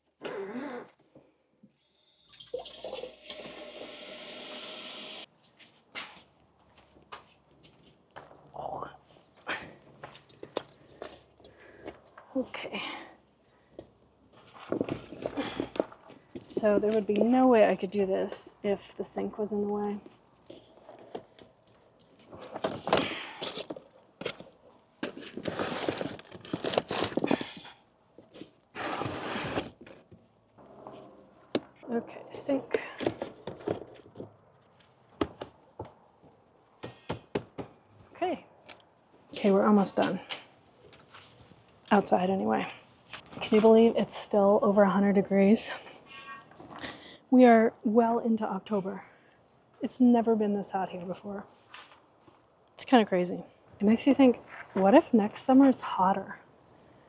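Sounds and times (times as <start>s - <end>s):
water pouring in a stream: 2.2s - 5.2s
rustling: 20.0s - 31.1s.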